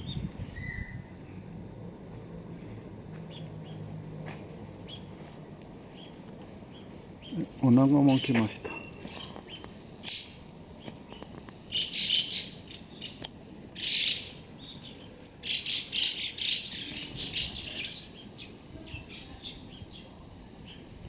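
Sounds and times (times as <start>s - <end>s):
magpies calling harshly: 6.0s - 13.2s, 13.8s - 20.9s.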